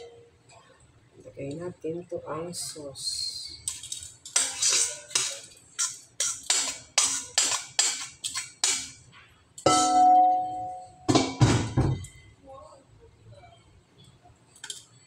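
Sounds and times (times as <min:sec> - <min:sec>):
utensil scraping metal bowl: 0:04.3 - 0:08.8
metal bowl ringing: 0:09.7 - 0:11.4.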